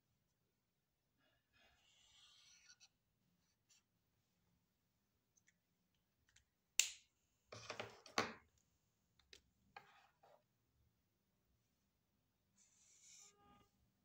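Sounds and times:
marker rustling and scraping on paper: 0:01.2 - 0:04.0, 0:09.8 - 0:10.5, 0:12.6 - 0:13.7.

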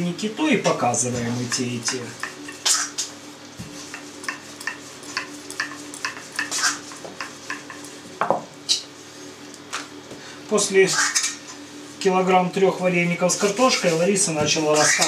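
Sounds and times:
utensil scraping in steel bowl: 0:03.8 - 0:07.8.

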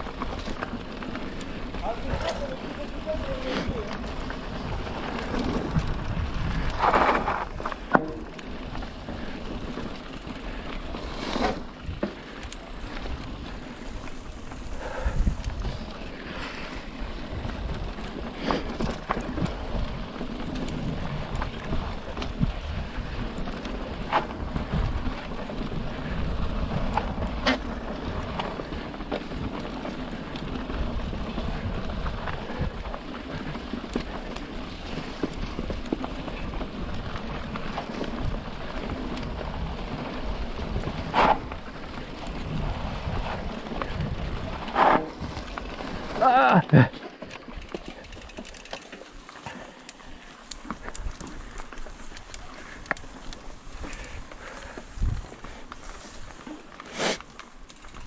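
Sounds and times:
tyre rumble on dirt: 0:00.0 - 0:12.2, 0:17.0 - 0:48.1
bike rattling clicks: 0:00.0 - 0:58.0.

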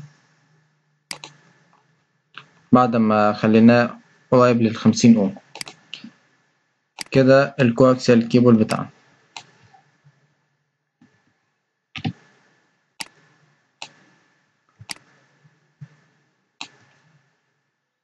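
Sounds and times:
faint steady hum: 0:00.0 - 0:11.4
computer mouse clicking: 0:01.1 - 0:01.4, 0:05.4 - 0:06.1, 0:07.0 - 0:07.2, 0:09.4 - 0:09.8, 0:12.0 - 0:12.2, 0:13.0 - 0:13.2, 0:13.8 - 0:14.1, 0:14.8 - 0:15.1, 0:16.6 - 0:17.1.

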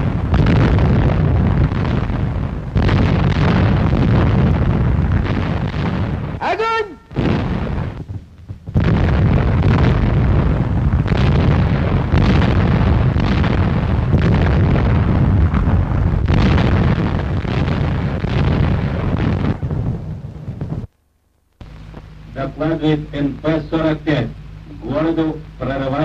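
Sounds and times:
artillery firing: 0:00.0 - 0:20.8.

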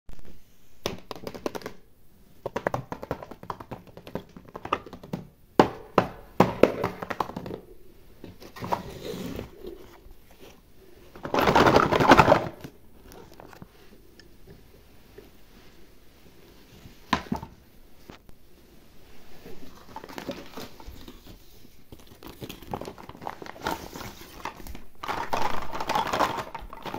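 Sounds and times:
plastic wrap crinkling: 0:19.4 - 0:26.9.

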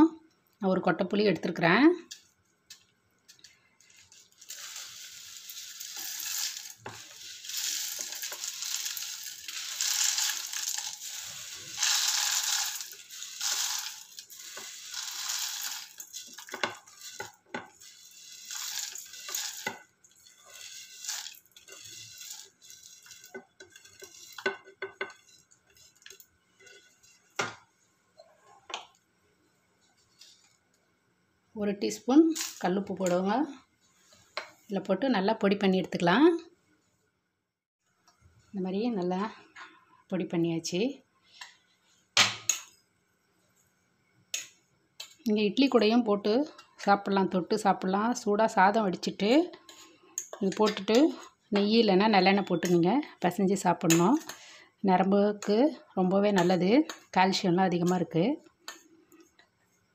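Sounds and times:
dry lentils rattling into steel jar: 0:04.1 - 0:24.5, 0:32.3 - 0:32.7.

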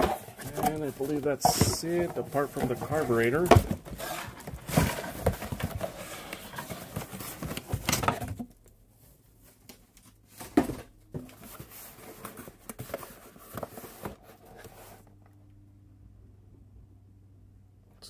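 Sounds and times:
packaging rustling: 0:00.0 - 0:08.4.

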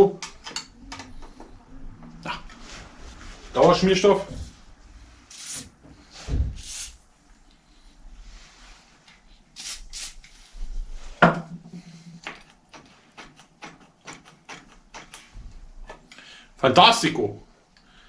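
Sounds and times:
aerosol spray hissing: 0:05.3 - 0:05.7, 0:06.5 - 0:07.0, 0:09.6 - 0:10.4.

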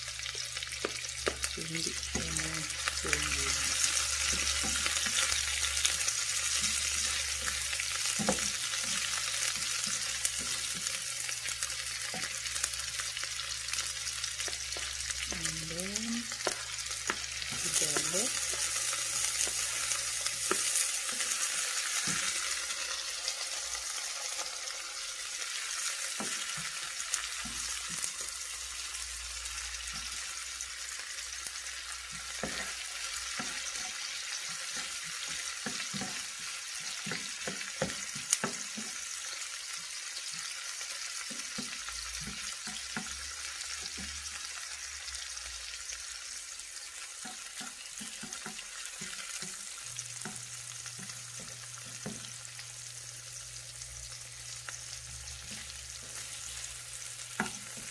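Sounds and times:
onions sizzling in oil: 0:00.0 - 0:57.9
spoon knocking and scraping pan: 0:00.8 - 0:12.6, 0:16.3 - 0:23.0, 0:25.8 - 0:28.3, 0:32.0 - 0:39.4, 0:41.2 - 0:44.3, 0:47.0 - 0:52.6, 0:55.4 - 0:57.9.

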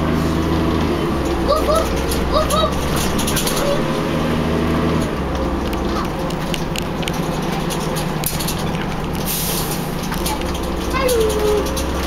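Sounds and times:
diesel engine droning: 0:00.0 - 0:12.0
windows and fittings rattling: 0:01.1 - 0:12.0.

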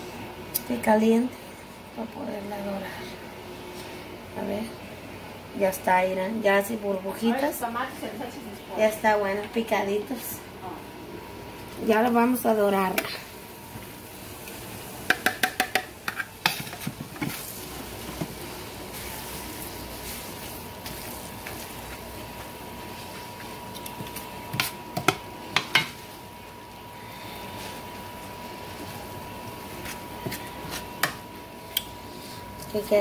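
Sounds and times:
food sizzling in hot fat: 0:11.2 - 0:33.0.

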